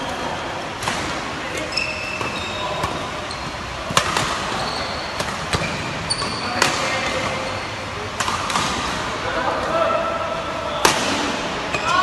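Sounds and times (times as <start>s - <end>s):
shoes squeaking on court: 1.5s - 7.8s
racket striking shuttlecock: 3.9s - 4.5s.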